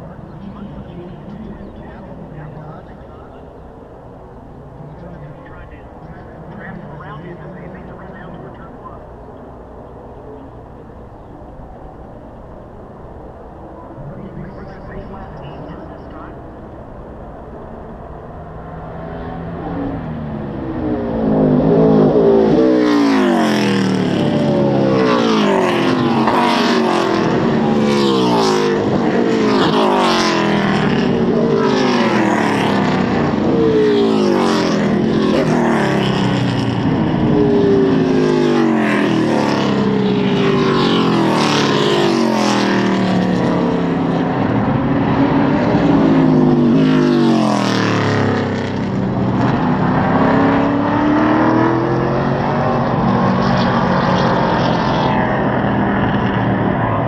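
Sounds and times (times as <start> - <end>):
stock car engines racing past: 0.0 - 57.0.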